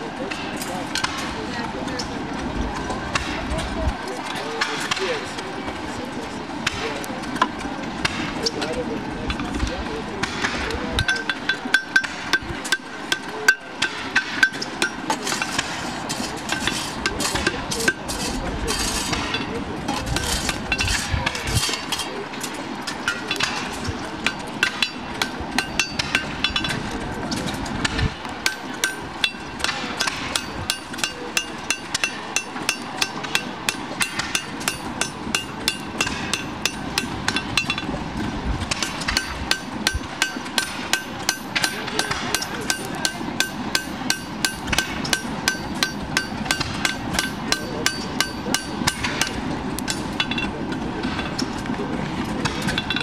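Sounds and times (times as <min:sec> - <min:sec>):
hammer ringing on anvil: 0:24.3 - 0:26.7, 0:28.5 - 0:37.9, 0:38.8 - 0:50.5.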